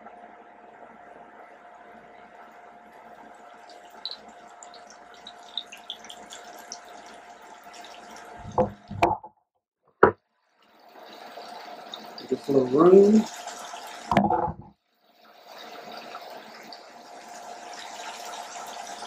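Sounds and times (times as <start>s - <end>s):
fish deep-frying in oil: 2.3s - 8.9s, 10.4s - 14.2s, 14.9s - 19.0s
loud knocks: 8.4s - 9.3s.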